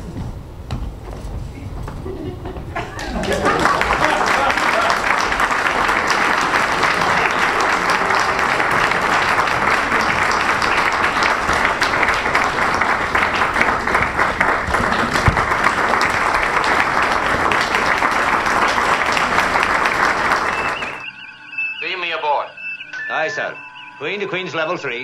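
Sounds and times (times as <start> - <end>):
audience applauding: 2.8 - 21.1.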